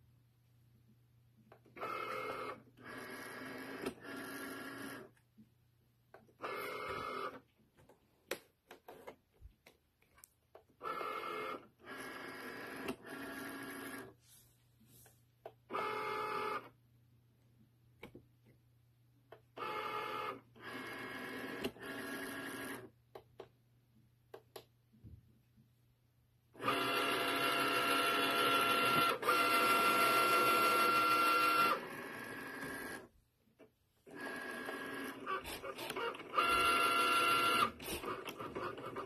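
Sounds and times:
cutting machine motors whirring: 1.6s - 5.1s, 26.6s - 33.1s, 34.1s - 39.0s.

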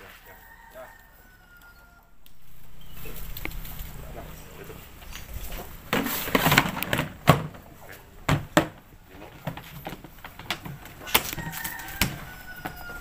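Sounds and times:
plastic scraping rustle: 5.1s - 7.6s.

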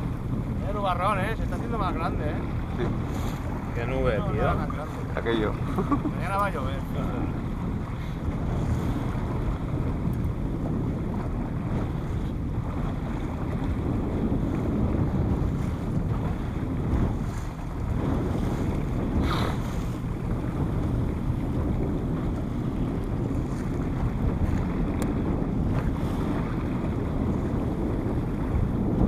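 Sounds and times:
boat engine droning: 0.0s - 29.0s
hull rushing through waves: 0.0s - 29.0s
wind buffeting microphone: 0.0s - 29.0s.

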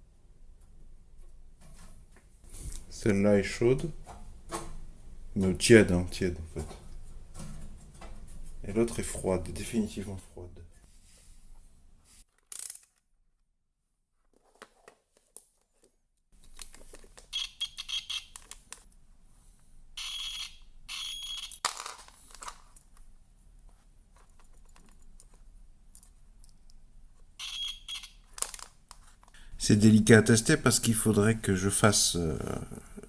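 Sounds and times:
test probes clicking and rustling: 12.3s - 13.0s, 15.2s - 19.0s, 20.0s - 23.1s, 24.1s - 26.8s, 27.4s - 29.4s
multimeter continuity buzzer beeping: 17.3s - 18.3s, 20.0s - 21.6s, 27.4s - 28.2s.

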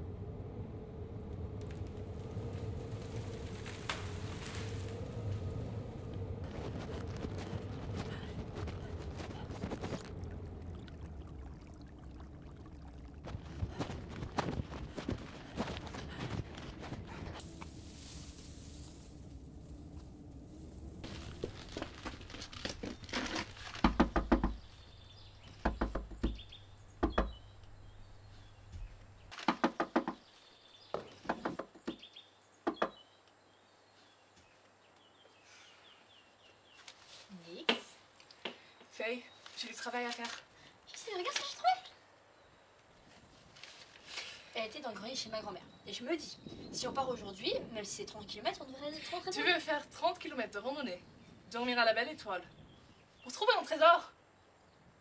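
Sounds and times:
low steady hum: 0.0s - 29.3s
footsteps in dry leaves: 1.8s - 10.8s, 13.3s - 23.8s.

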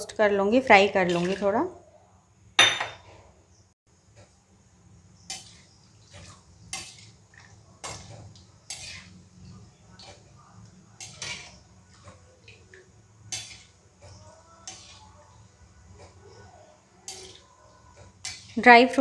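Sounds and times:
metal spoon scraping metal pan: 1.0s - 1.6s, 7.8s - 9.2s, 11.0s - 12.2s, 13.3s - 15.2s, 17.0s - 17.4s, 18.1s - 18.7s
nuts frying in fat: 3.9s - 19.0s.

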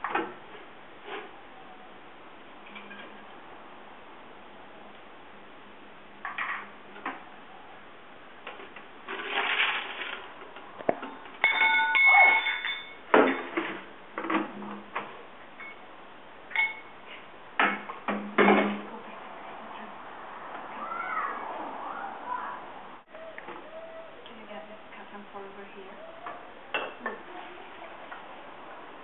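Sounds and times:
kitchenware clattering on stone: 11.0s - 13.8s
ringing metallic clink: 11.4s - 13.0s, 16.5s - 16.9s.

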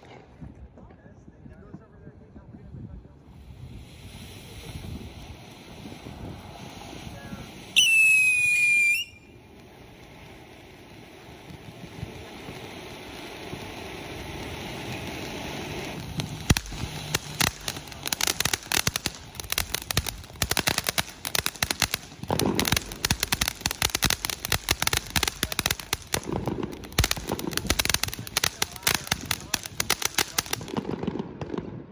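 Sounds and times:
firework fountain hissing: 2.4s - 31.9s
rapid crackling pops: 11.4s - 31.2s
sharp crack: 14.4s - 31.1s.

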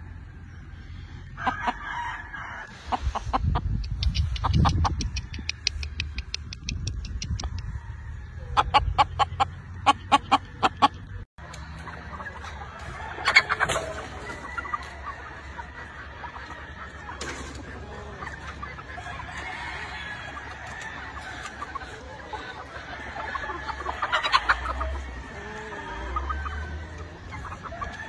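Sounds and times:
chickens clucking: 0.0s - 28.0s.

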